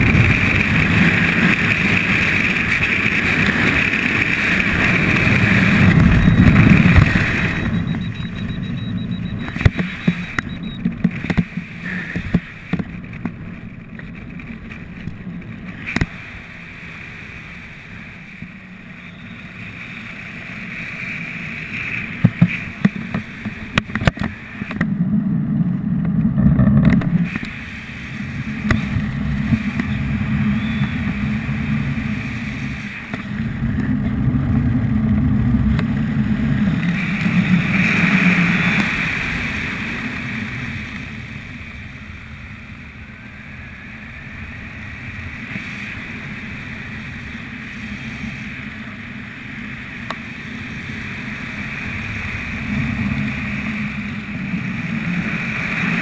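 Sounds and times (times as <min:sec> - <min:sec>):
wind buffeting microphone: 0:00.0 - 0:18.1.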